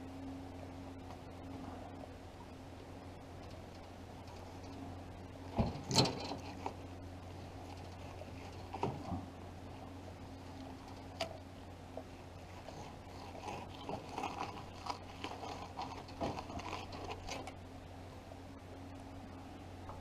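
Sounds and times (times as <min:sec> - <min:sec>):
knife cutting and scraping fish: 0:12.4 - 0:17.6.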